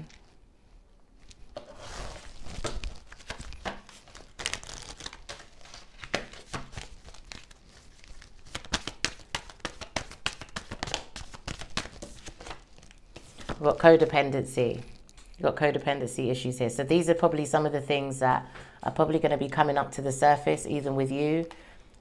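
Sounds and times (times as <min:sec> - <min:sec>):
cards shuffling: 0:01.6 - 0:13.6.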